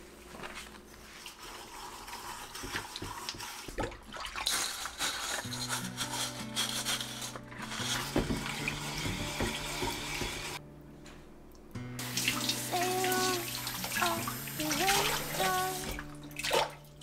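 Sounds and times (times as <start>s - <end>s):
scrubbing pot in water: 1.0s - 10.6s
tap running: 5.0s - 10.6s.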